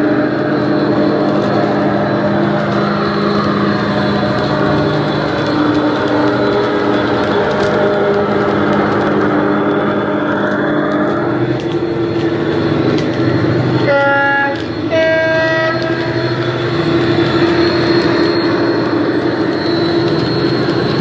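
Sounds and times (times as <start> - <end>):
diesel train engine sound: 0.0 - 21.0
two-tone train horn: 13.8 - 16.2.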